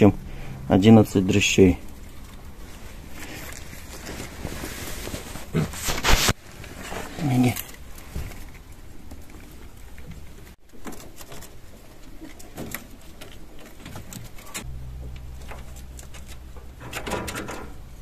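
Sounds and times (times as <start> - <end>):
rabbits clicking and rustling: 6.6 - 18.0
low steady hum: 11.5 - 18.0.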